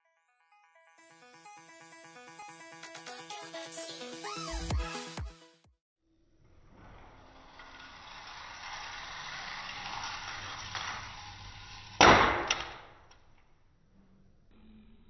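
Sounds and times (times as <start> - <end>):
toy car rolling on plastic track: 6.9 - 12.0
toy car crashing: 7.6 - 13.0.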